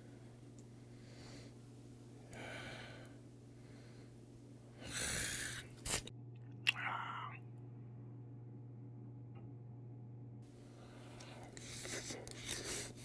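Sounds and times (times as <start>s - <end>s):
soft breaths: 0.0s - 5.8s, 10.5s - 13.0s
low steady hum: 0.0s - 13.0s.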